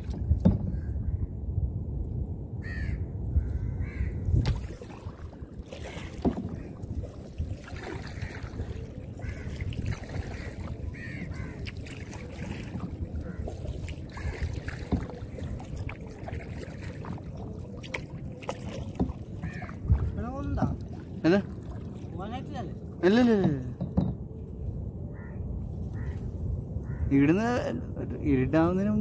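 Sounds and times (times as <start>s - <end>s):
boat paddle and water noise: 0.0s - 29.0s
crows cawing: 2.6s - 4.2s, 9.2s - 9.7s, 10.3s - 11.7s, 19.4s - 19.8s, 25.1s - 26.2s, 26.8s - 27.1s.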